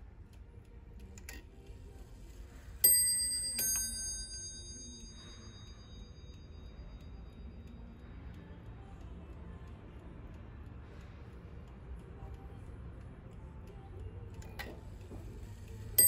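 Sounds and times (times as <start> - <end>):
mantel clock bell striking: 2.8 - 7.2.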